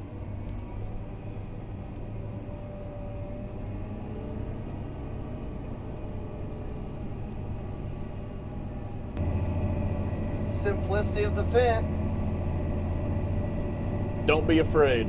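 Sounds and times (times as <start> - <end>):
tractor diesel engine drone: 0.0 - 15.0.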